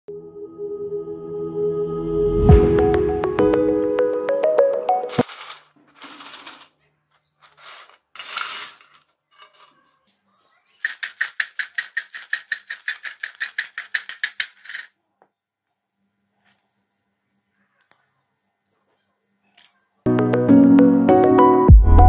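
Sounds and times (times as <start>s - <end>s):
chips rattling in metal bowl: 5.1s - 6.8s, 7.4s - 9.9s, 10.7s - 14.9s.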